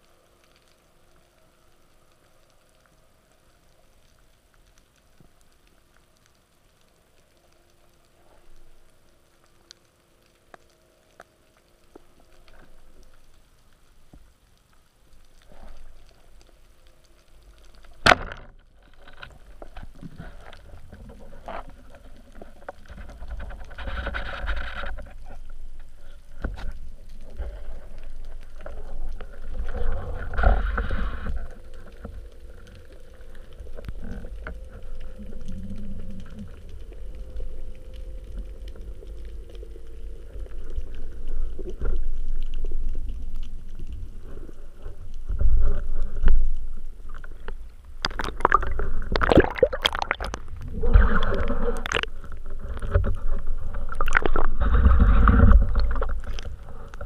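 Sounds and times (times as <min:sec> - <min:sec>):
low rumbling water noise: 0:00.0 - 0:57.0.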